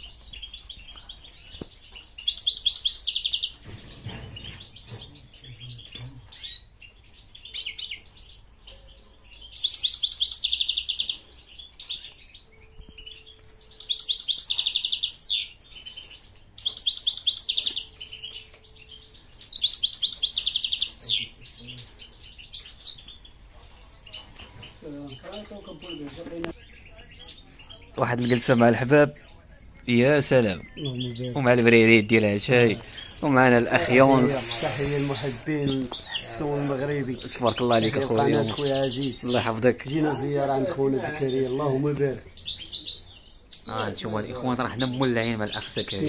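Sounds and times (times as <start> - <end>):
songbird trilling: 0.0 - 23.3, 32.5 - 44.1.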